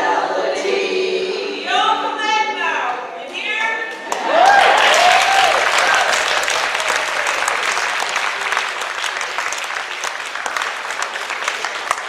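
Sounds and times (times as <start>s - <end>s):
audience applauding: 4.1s - 12.0s.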